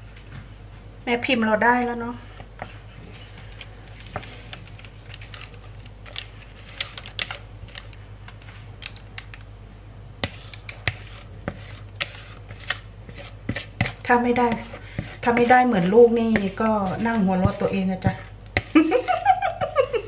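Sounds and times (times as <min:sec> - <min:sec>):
low steady hum: 0:00.0 - 0:20.0
batter scraped from mixing bowl: 0:10.2 - 0:18.7.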